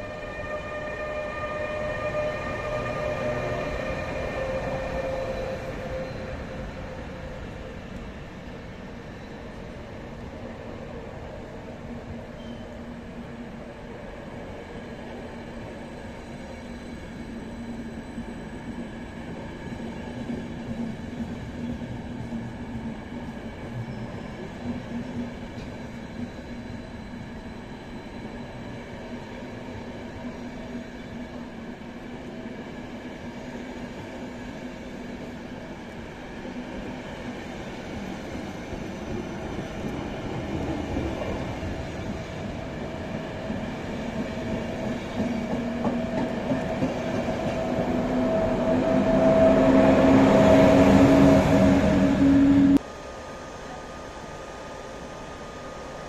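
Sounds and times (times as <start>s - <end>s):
train wheels rumbling: 36.6s - 52.9s.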